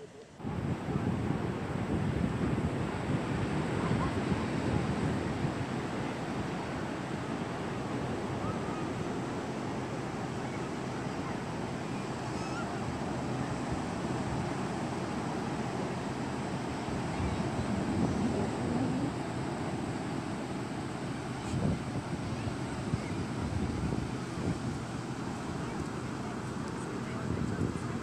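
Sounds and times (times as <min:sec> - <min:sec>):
distant surf breaking: 0:00.0 - 0:28.0
wind buffeting microphone: 0:00.4 - 0:09.2, 0:12.4 - 0:28.0.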